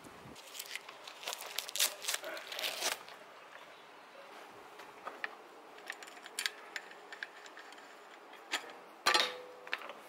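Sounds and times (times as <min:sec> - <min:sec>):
small metallic clicks and knocks: 0:05.0 - 0:10.0.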